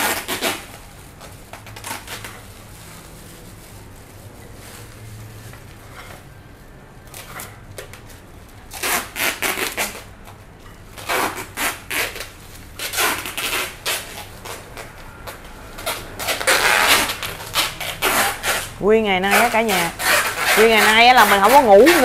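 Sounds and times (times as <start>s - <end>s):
packing tape pulled off roll: 0.0s - 6.2s, 7.0s - 10.1s, 10.9s - 18.7s, 19.3s - 22.0s
plastic bags crinkling: 0.1s - 5.9s.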